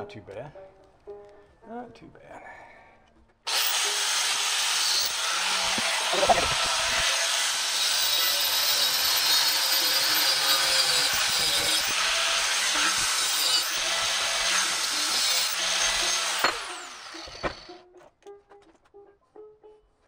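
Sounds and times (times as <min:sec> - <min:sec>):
angle grinder cutting metal: 0:03.5 - 0:17.8
grinder disc winding down: 0:03.5 - 0:17.8
clunk: 0:16.3 - 0:17.8.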